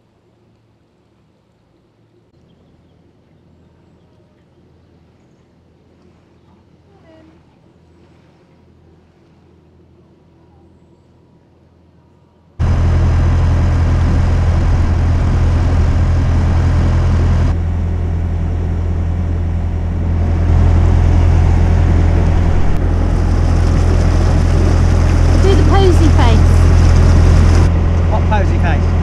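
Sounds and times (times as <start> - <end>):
boat engine droning: 12.6 - 29.0
propeller wash churning: 12.6 - 29.0.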